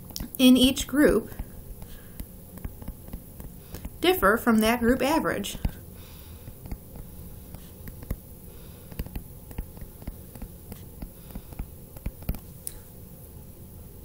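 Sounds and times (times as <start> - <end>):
steady low hum: 0.0 - 14.0
stylus tapping on tablet screen: 1.1 - 4.0, 5.5 - 5.8, 6.4 - 12.5.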